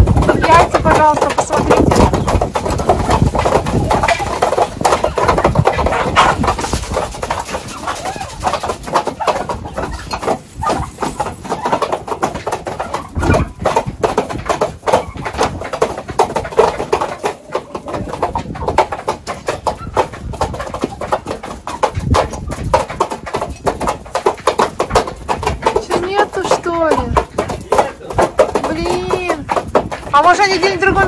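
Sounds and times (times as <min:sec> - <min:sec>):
wind rumble on microphone: 0:00.0 - 0:08.8, 0:21.9 - 0:23.8
turkeys and chickens clucking: 0:00.0 - 0:23.4.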